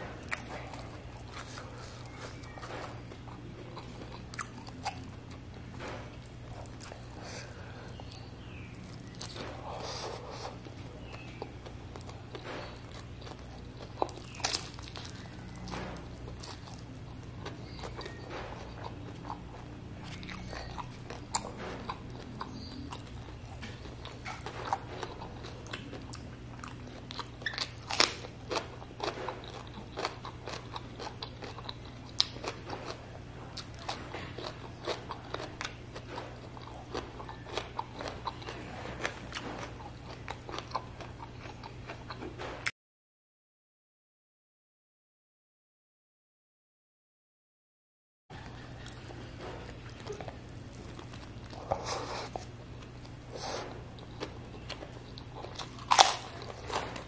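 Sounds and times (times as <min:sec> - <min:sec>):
person chewing with wet smacks: 0:00.0 - 0:42.7, 0:48.4 - 0:57.0
steady low hum: 0:00.0 - 0:42.7, 0:48.3 - 0:57.0.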